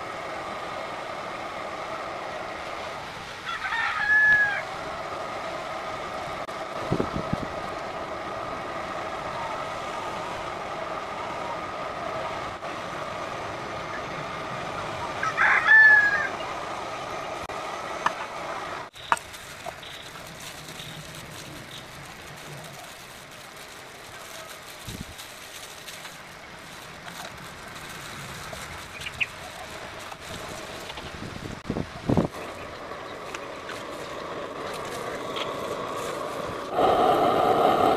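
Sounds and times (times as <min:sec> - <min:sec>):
outdoor background noise: 0:00.0 - 0:37.9
rooster crowing: 0:03.4 - 0:04.8, 0:15.2 - 0:16.5.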